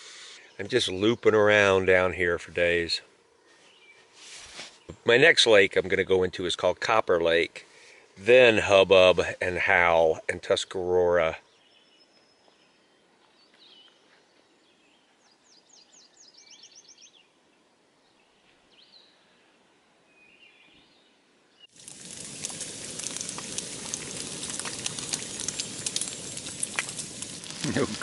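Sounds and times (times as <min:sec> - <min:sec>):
woodland birds chirping: 0:00.2 - 0:06.2, 0:10.4 - 0:28.0
bacon sizzling in a frying pan: 0:21.7 - 0:28.0.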